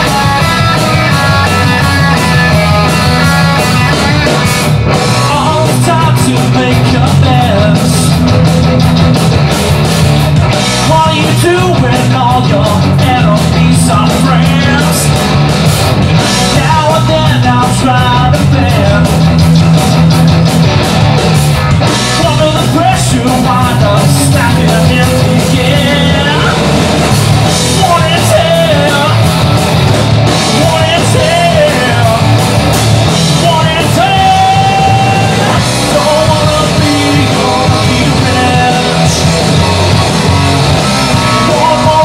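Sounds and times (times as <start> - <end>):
bass guitar: 0.0 - 42.0
drum kit: 0.0 - 42.0
electric guitars: 0.0 - 42.0
man singing: 5.0 - 8.2, 10.8 - 15.1, 16.3 - 19.3, 22.0 - 26.8, 27.6 - 29.3, 30.4 - 32.4, 33.2 - 39.9, 41.2 - 42.0.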